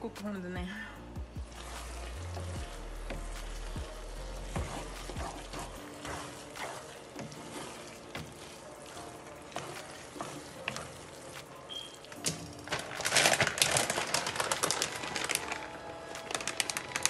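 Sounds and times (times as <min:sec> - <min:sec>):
sauce sizzling: 0:01.3 - 0:13.0
spatula scraping frying pan: 0:01.6 - 0:11.9.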